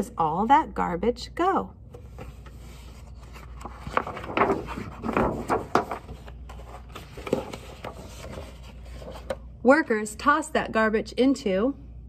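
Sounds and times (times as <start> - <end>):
paper pages being turned: 2.0 - 9.4.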